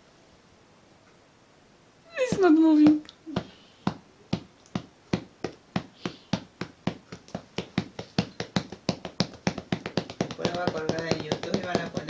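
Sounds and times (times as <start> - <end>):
hand patting a cat: 2.8 - 12.0.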